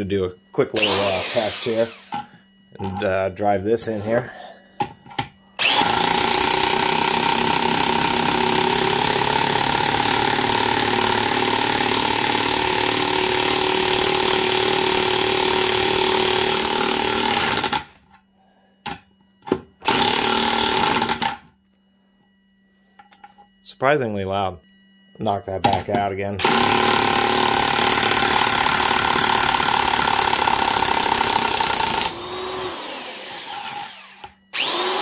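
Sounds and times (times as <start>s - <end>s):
electric impact wrench hammering: 0.7s - 3.1s, 4.8s - 18.2s, 18.9s - 21.5s, 25.6s - 35.0s.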